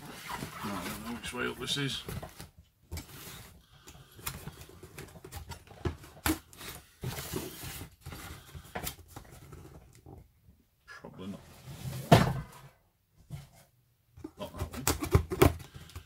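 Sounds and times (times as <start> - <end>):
packaging crinkling and scraping: 0.0 - 10.1.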